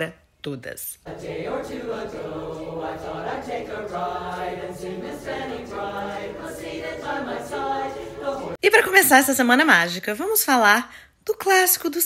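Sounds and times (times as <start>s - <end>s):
women's choir singing: 1.0s - 8.6s.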